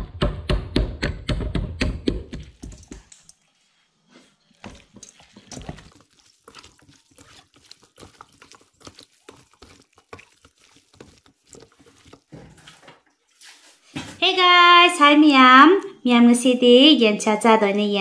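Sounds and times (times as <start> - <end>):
hand squelching food in bowl: 2.4 - 14.1.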